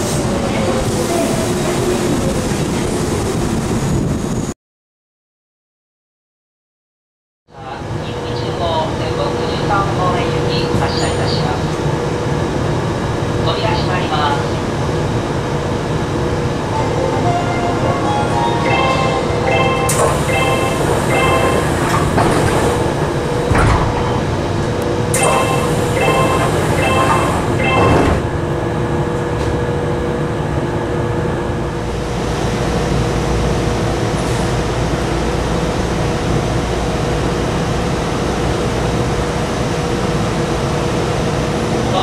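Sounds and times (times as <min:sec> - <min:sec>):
electrical hum from train: 0:07.5 - 0:42.0
electronic door chime beeps: 0:16.9 - 0:22.1, 0:25.2 - 0:28.2
train doors thumping shut: 0:19.5 - 0:28.4.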